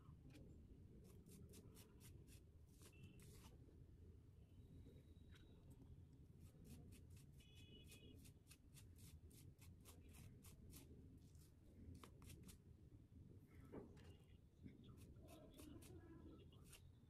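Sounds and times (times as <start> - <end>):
brush strokes scratching through hair: 15.0 - 16.8.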